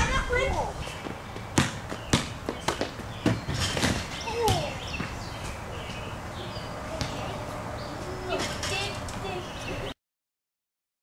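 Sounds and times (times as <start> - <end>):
basketball bouncing on stone: 1.0 - 5.2, 7.0 - 7.2.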